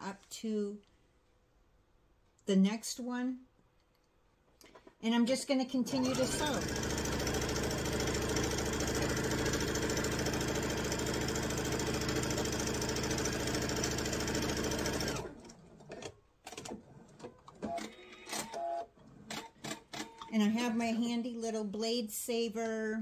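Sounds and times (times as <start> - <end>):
sewing machine running: 5.8 - 16.8.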